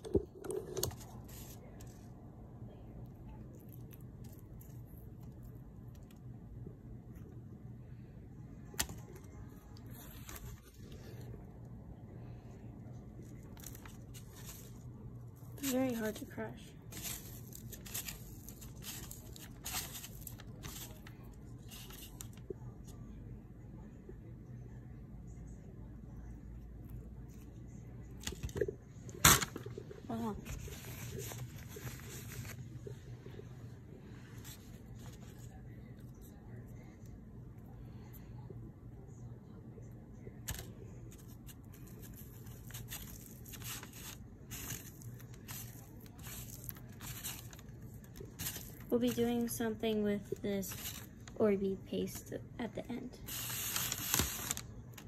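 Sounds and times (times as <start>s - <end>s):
water beads crackling: 15.5s - 22.3s, 41.8s - 49.8s, 53.3s - 55.0s.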